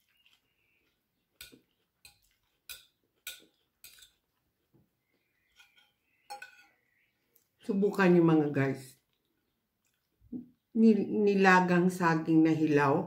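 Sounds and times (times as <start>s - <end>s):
fork clinking on a plate: 1.4s - 4.2s, 5.5s - 6.8s.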